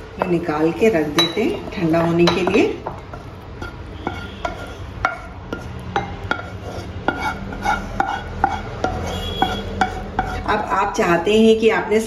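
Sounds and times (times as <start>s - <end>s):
spatula scraping batter from pan: 3.6s - 10.5s.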